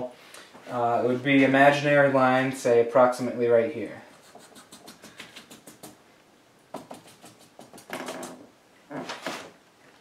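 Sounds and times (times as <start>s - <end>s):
marker pen strokes on paper: 4.0s - 6.0s, 6.7s - 8.0s.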